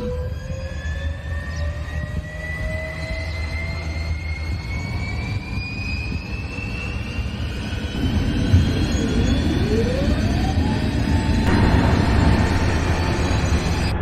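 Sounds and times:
jet engines rumbling and whining: 0.0 - 14.0.

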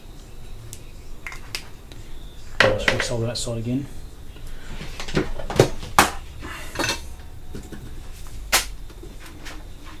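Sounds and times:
tools clinking on workbench: 6.7 - 7.8.

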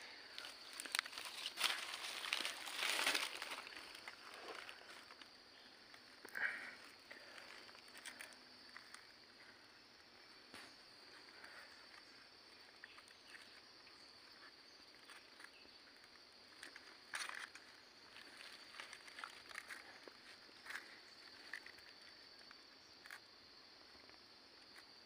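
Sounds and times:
rustling in wet leaf litter: 0.0 - 5.3.

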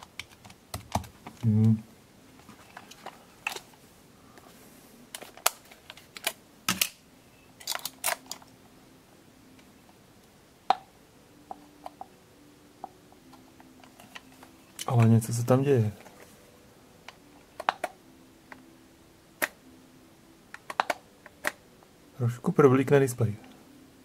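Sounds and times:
batteries clicking in compartment: 2.7 - 3.7, 5.1 - 7.0, 7.6 - 8.5, 17.1 - 18.6, 20.5 - 21.6.

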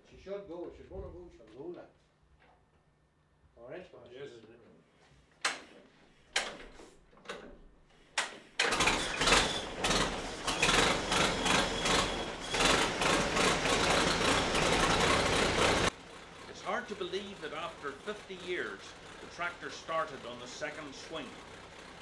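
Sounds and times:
tractor engine running loudly: 8.6 - 22.0.

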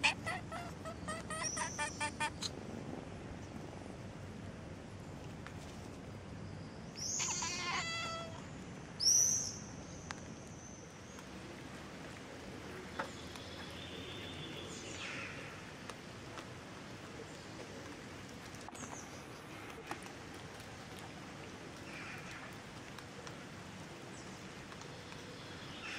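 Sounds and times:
high-pitched animal calls: 0.0 - 2.5, 7.1 - 8.4
outdoor background noise: 0.0 - 25.9.

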